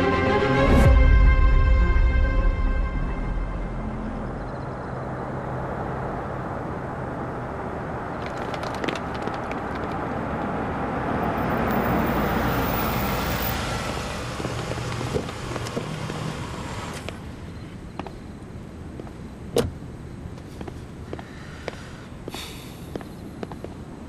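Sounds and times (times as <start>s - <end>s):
car engine approaching: 3.2s - 18.1s.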